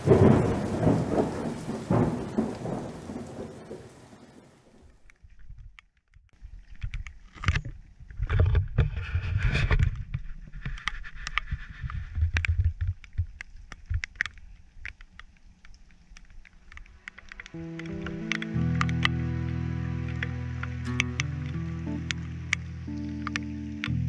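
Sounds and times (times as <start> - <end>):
raindrops tapping: 0.0 - 8.8, 10.0 - 24.0
rumbling on microphone: 7.8 - 14.0.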